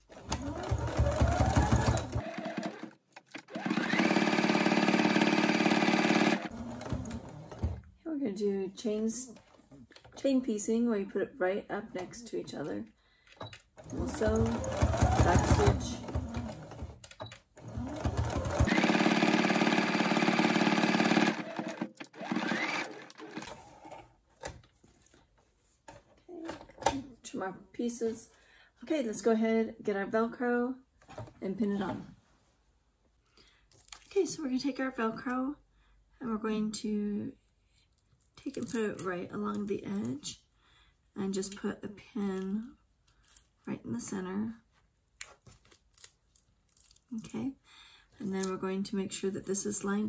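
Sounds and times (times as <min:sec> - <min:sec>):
sewing machine stitching: 0:00.0 - 0:07.8, 0:13.8 - 0:24.0.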